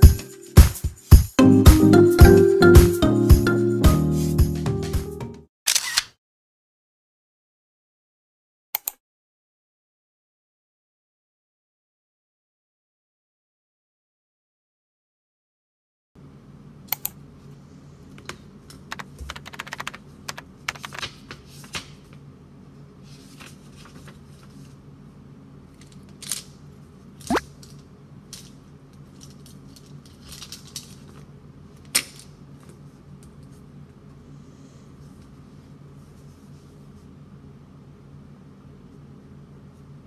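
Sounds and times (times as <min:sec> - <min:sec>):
planner pages rustling and turning: 0:20.7 - 0:22.2, 0:23.0 - 0:24.8.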